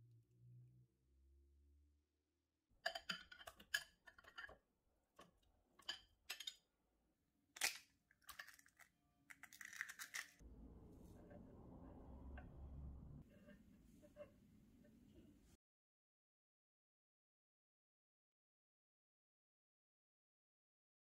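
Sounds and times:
kitchen handling clicks and knocks: 2.9 - 4.6
faint low rumble: 10.4 - 15.6.

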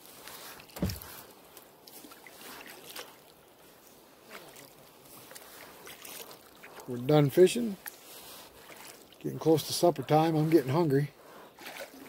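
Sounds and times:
faint water splashes and drips: 0.0 - 12.0
low thump: 0.8 - 1.1.

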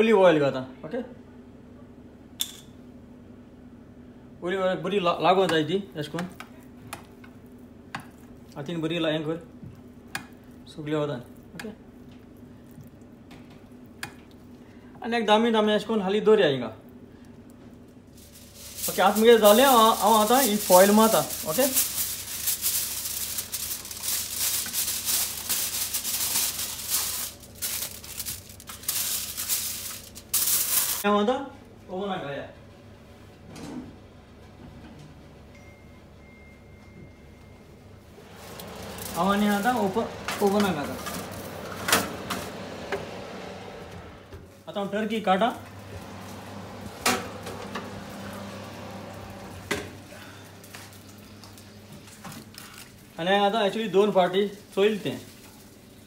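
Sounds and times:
aluminium foil crinkling: 17.3 - 31.1, 38.3 - 42.0, 50.2 - 56.0.

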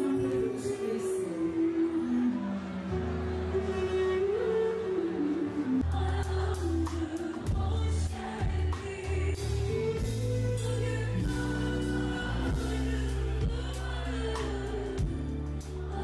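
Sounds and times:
woman singing into microphone: 0.0 - 2.5, 3.6 - 16.0
live band music: 0.0 - 16.0.

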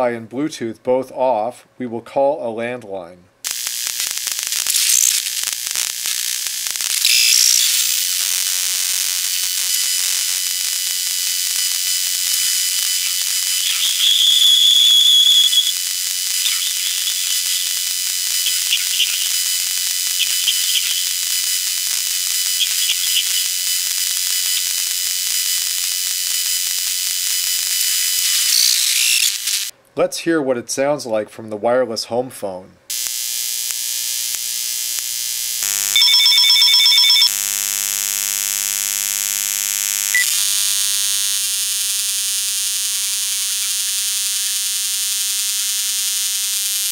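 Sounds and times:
steady radio hiss: 3.5 - 25.9
high bursts: 3.5 - 26.1, 26.8 - 29.7
high whistle tones: 13.6 - 15.8.

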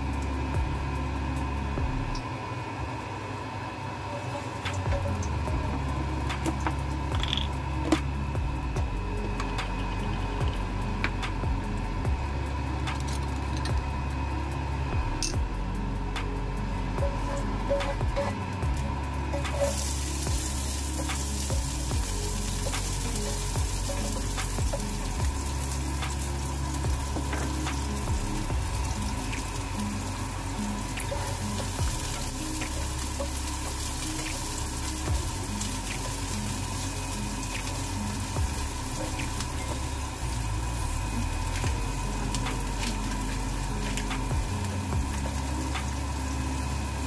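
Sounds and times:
low hum: 0.0 - 47.0
onion sizzling in hot oil: 4.0 - 14.7, 15.7 - 47.0.

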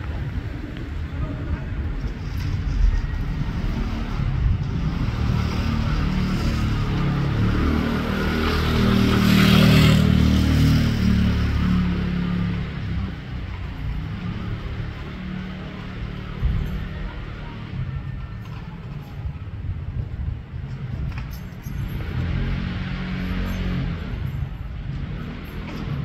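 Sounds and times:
motorcycle passing by: 3.4 - 13.4, 22.0 - 26.0.

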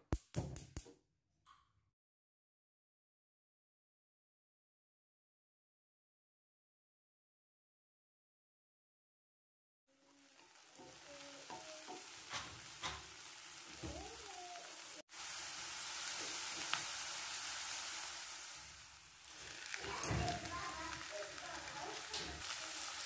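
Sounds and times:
onion sizzling in a frying pan: 9.9 - 23.0.

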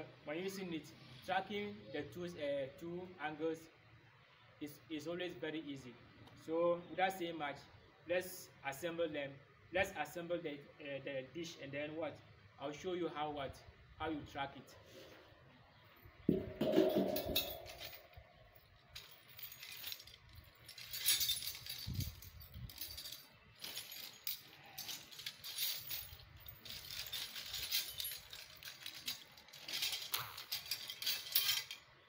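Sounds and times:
small metal parts clinking: 15.9 - 32.0.

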